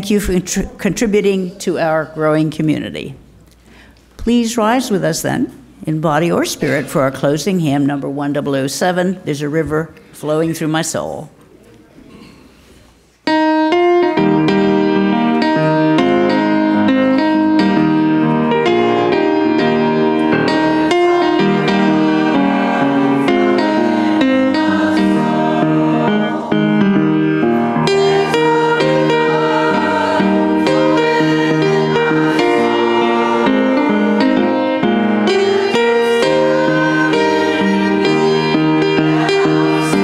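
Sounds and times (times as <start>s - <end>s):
piano playing a hymn: 13.2s - 40.0s.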